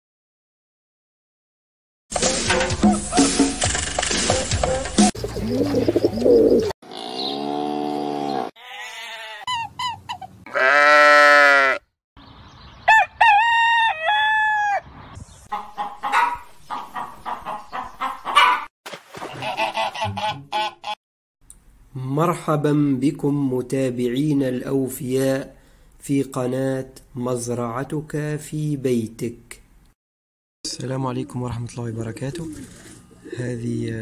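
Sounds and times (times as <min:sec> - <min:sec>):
farm animal calls: 0:05.3 - 0:11.8, 0:15.5 - 0:18.7
rooster crowing: 0:12.9 - 0:14.9
hens clucking: 0:15.5 - 0:18.7.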